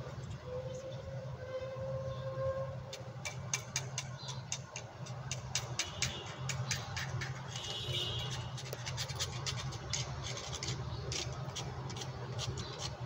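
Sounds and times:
quick irregular clicks: 3.2 - 7.7.

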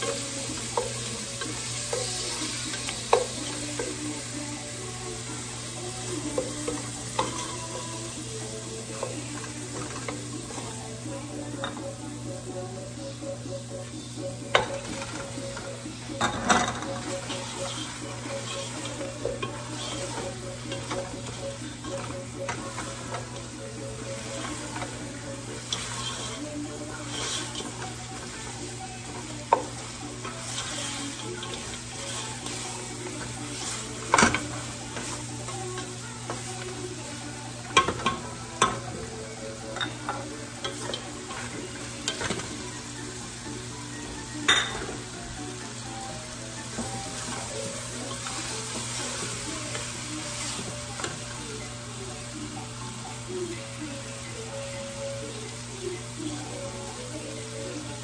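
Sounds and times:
meat sizzling in a pot: 0.0 - 58.0
wooden spoon stirring: 14.5 - 42.6.

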